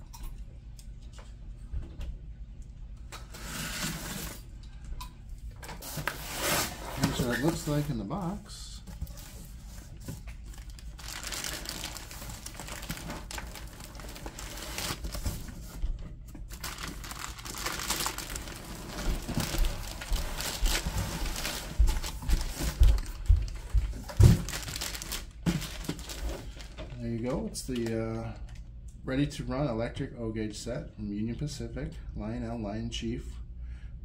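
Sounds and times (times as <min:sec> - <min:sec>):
plastic wrapping crinkling: 0:07.0 - 0:08.4, 0:09.0 - 0:15.8, 0:16.4 - 0:27.9.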